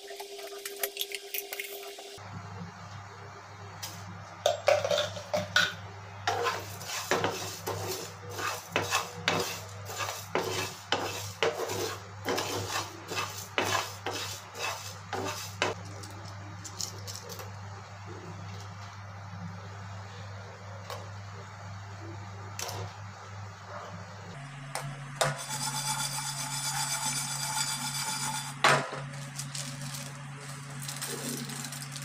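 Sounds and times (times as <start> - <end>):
spatula stirring rattling seeds in pan: 6.3 - 17.2, 29.4 - 32.0.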